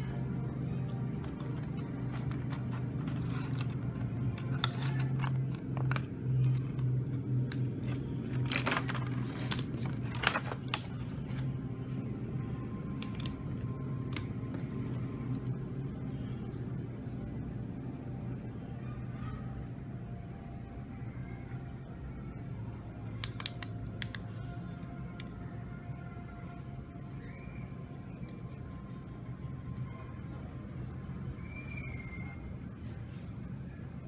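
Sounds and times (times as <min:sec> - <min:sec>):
steady low hum: 0:00.0 - 0:34.0
plastic packaging crinkling: 0:07.5 - 0:11.5.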